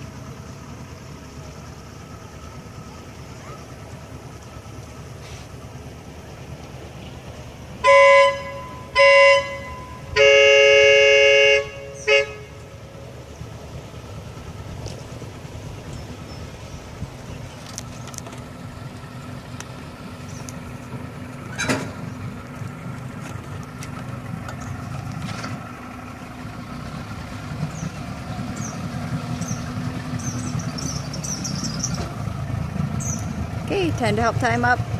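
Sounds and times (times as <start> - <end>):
boat motor running: 0.0 - 34.9
boat horn blasts: 7.8 - 12.9.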